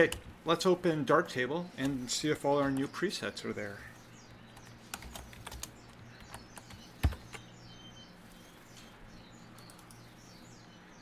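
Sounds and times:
faint bird chirps: 1.6s - 11.0s
keyboard typing: 4.5s - 7.4s.

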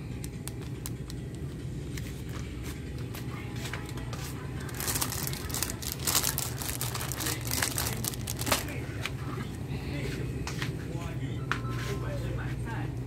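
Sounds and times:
steady low hum: 0.0s - 13.0s
plastic packaging crinkling: 0.2s - 1.5s, 4.6s - 8.8s.

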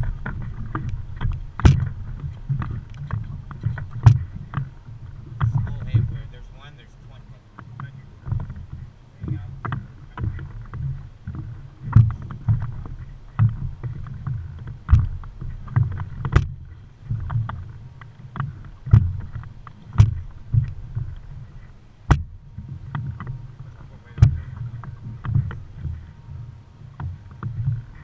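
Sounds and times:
low rumble: 0.0s - 28.0s
water slapping against hull: 0.0s - 28.0s
sharp knocks: 1.2s - 2.0s, 2.6s - 4.7s, 18.4s - 21.1s, 22.1s - 23.1s, 24.2s - 24.4s.

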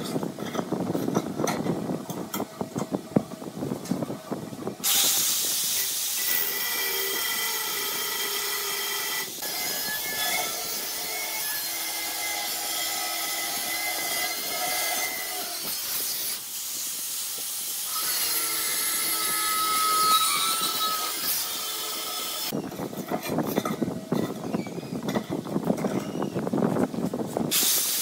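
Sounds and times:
angle grinder cutting steel: 6.1s - 16.5s, 17.8s - 22.6s.

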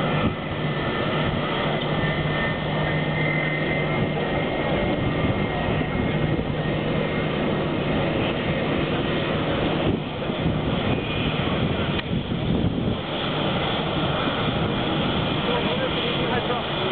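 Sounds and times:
jet engines at taxi power: 0.0s - 16.9s.

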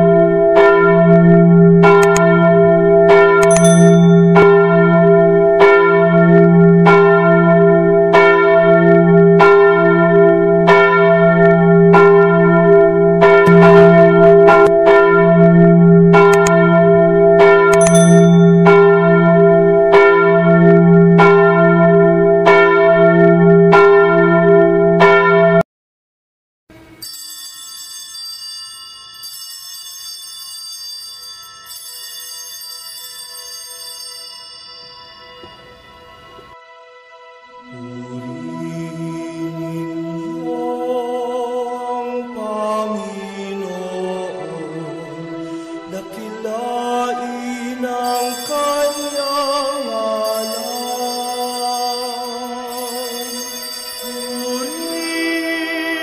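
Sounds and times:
church bell ringing: 0.0s - 25.6s, 27.0s - 36.6s, 44.4s - 56.0s
quiet chime tones: 3.4s - 4.6s, 17.7s - 18.9s, 26.9s - 36.6s, 48.0s - 55.8s.

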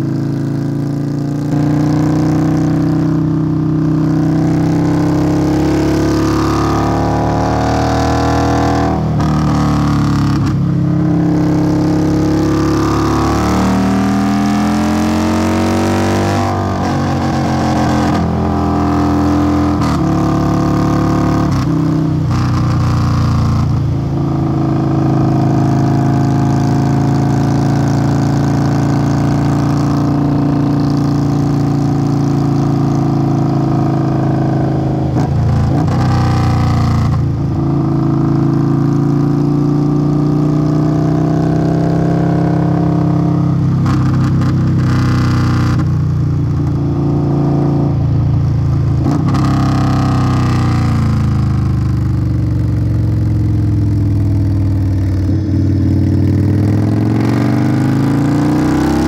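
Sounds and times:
motorcycle exhaust note: 0.0s - 59.0s.

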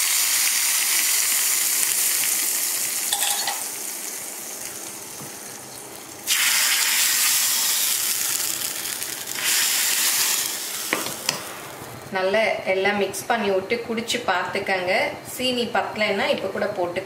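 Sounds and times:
hot oil sizzling: 0.0s - 12.1s
loud sizzle: 0.0s - 12.2s.

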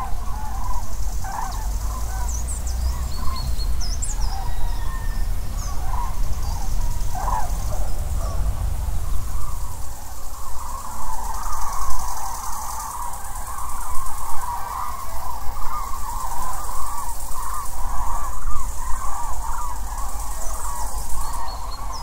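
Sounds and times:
steady low rumble: 0.0s - 11.4s
cranes trumpeting: 0.0s - 22.0s
small birds chirping: 0.0s - 22.0s.

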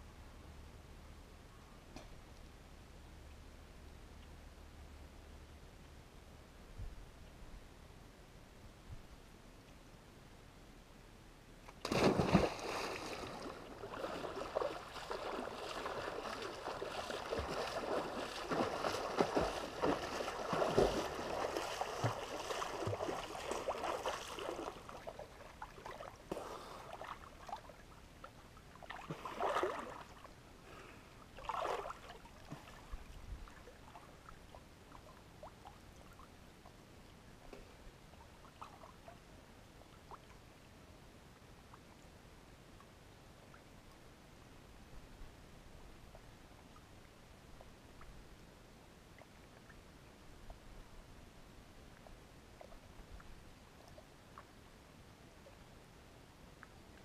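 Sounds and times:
person plunging into water: 11.8s - 24.9s
splashing water of swimming: 11.8s - 27.8s, 28.8s - 30.3s, 31.4s - 32.9s
water lapping: 11.8s - 36.4s.

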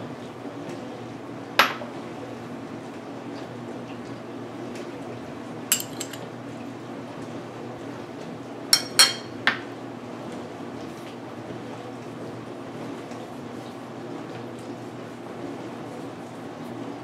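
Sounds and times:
spoon and glass clinking on bowl: 5.7s - 6.3s, 8.8s - 9.4s.

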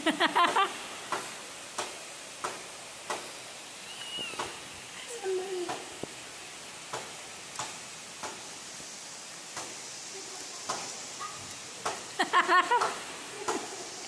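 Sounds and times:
steady rain hiss: 0.0s - 14.0s
water drips ticking: 6.8s - 13.7s.

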